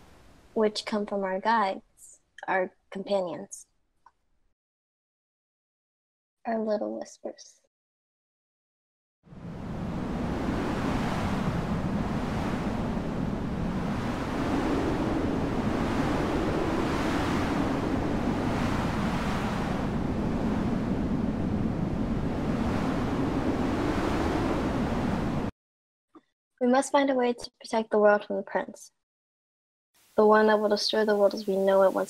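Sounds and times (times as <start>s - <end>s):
strong rushing wind gusts: 9.3s - 25.5s.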